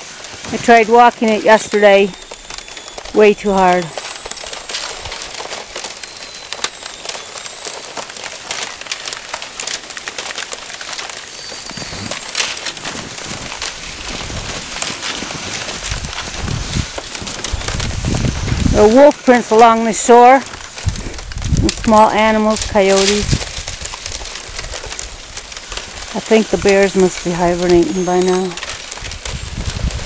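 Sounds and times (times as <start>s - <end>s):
ice crackling and tinkling: 0.0s - 30.0s.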